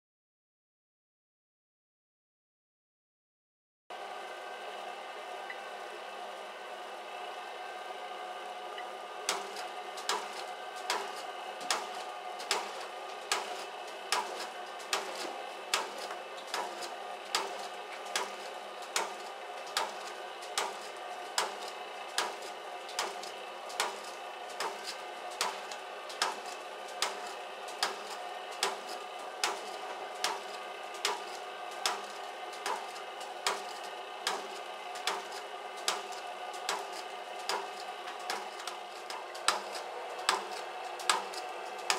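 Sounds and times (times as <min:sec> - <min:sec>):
machine motor hum: 0:03.9 - 0:41.9
sharp mechanical click: 0:09.3 - 0:41.9.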